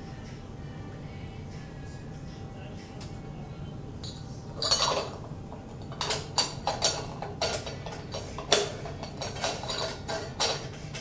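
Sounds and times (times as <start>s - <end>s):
glass and metal parts clinking: 4.0s - 11.0s.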